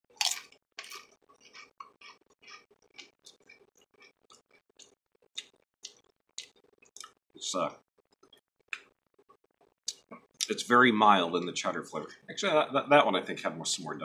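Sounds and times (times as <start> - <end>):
chewing crunchy tortilla chips: 0.1 - 7.2.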